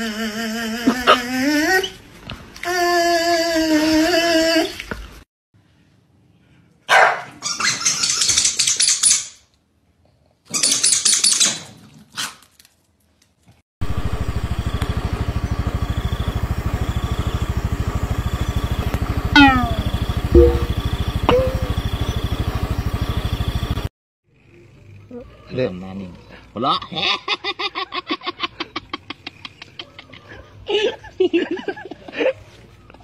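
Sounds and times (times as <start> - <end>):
dogs barking: 6.9 - 7.4
engine idling: 13.8 - 23.9
puppy whining: 19.4 - 20.7.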